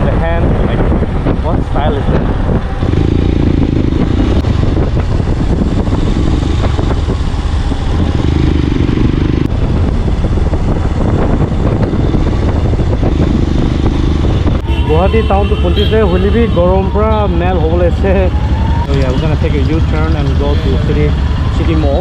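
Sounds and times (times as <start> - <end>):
wind rushing over microphone: 0.0 - 22.0
motorcycle engine running: 2.4 - 17.0.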